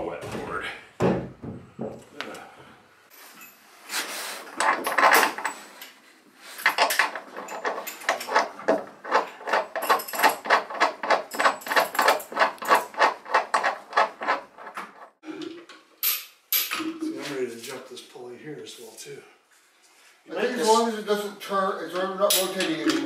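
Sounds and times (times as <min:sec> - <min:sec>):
rapid scraping on wood: 0:12.0 - 0:15.2.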